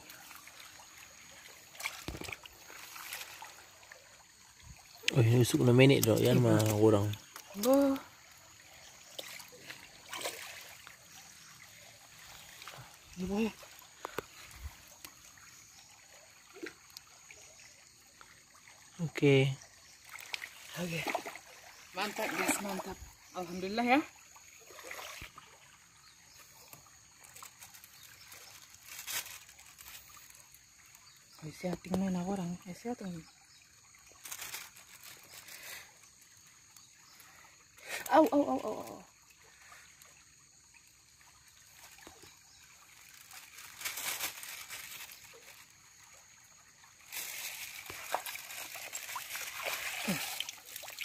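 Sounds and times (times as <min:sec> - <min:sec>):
bamboo rustle: 0:00.0 - 0:17.0, 0:26.3 - 0:31.3, 0:34.0 - 0:40.1, 0:41.4 - 0:51.0
stream water trickling: 0:00.0 - 0:51.0
handling woven bamboo trap: 0:26.6 - 0:31.0, 0:34.2 - 0:35.8, 0:42.9 - 0:45.8, 0:47.0 - 0:51.0.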